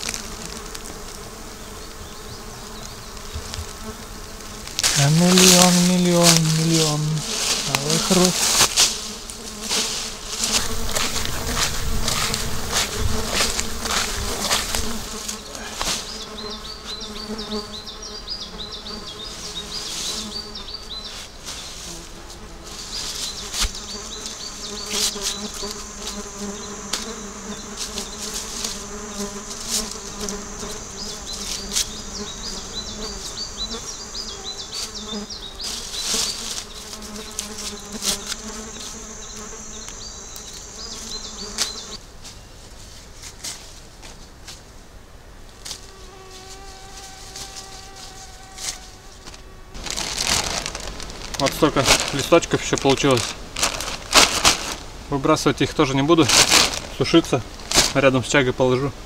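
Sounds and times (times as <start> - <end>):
plant stems rustling and cracking: 0.0 - 1.2, 2.8 - 16.1, 45.6 - 55.0, 56.1 - 58.2
insects buzzing: 0.0 - 59.0.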